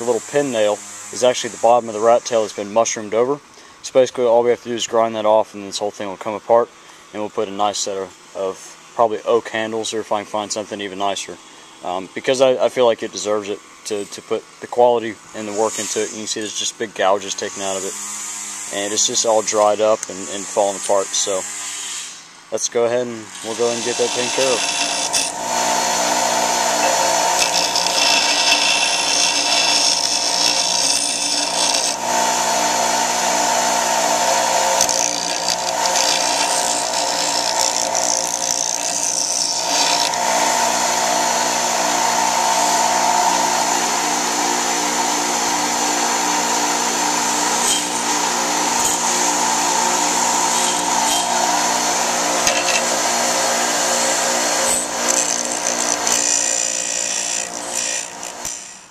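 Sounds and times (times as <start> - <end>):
bench grinder grinding metal: 15.5 - 22.3, 23.1 - 58.9.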